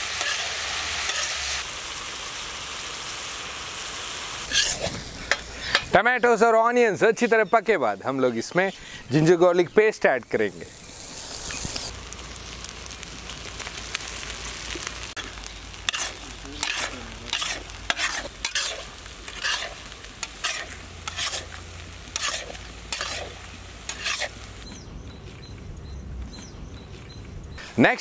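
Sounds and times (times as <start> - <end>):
metal spatula scraping a pan: 0.0 - 1.6, 4.4 - 6.0, 15.8 - 24.4
masala sizzling on a pan: 0.0 - 6.2, 7.1 - 25.8.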